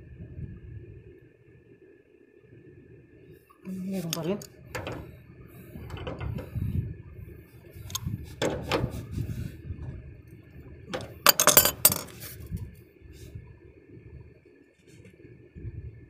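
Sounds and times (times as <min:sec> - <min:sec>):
wrench clinking on metal: 0:04.1 - 0:05.1, 0:10.9 - 0:12.2.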